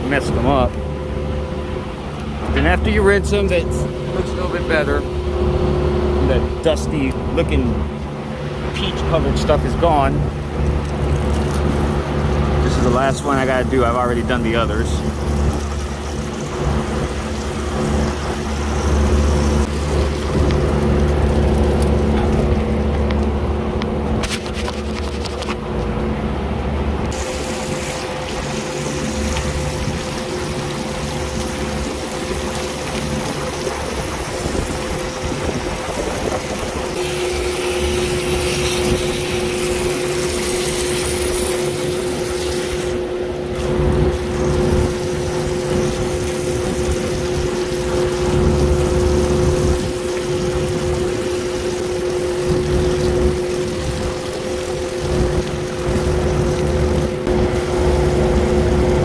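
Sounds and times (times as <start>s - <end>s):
machinery hum: 0.0s - 59.0s
water hose spraying and splashing: 8.3s - 23.2s, 24.1s - 25.6s, 27.1s - 59.0s.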